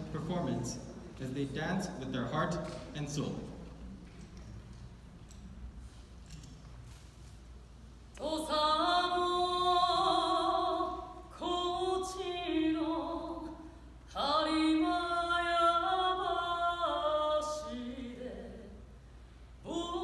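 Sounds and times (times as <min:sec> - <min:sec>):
woman singing unaccompanied: 0:08.2 - 0:18.8, 0:19.6 - 0:20.0.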